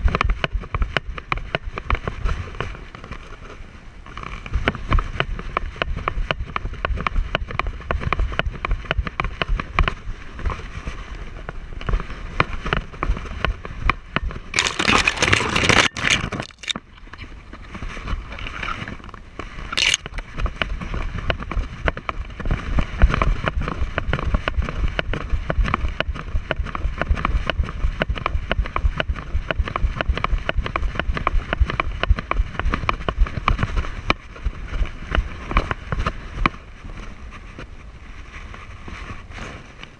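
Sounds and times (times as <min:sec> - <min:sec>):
camera mount jostling: 0:14.6 - 0:16.8, 0:19.8 - 0:20.1
dog footfalls on gravel: 0:14.6 - 0:16.8.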